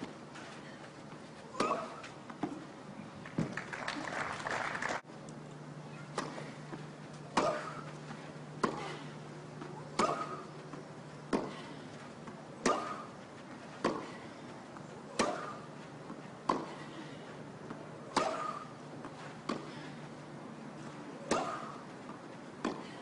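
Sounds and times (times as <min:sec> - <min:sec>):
tennis racket hitting ball: 0:22.6 - 0:23.0.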